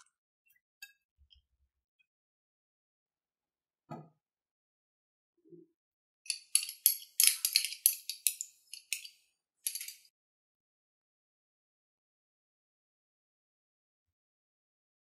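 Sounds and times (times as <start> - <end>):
kitchen utensils clinking: 6.3 - 10.1.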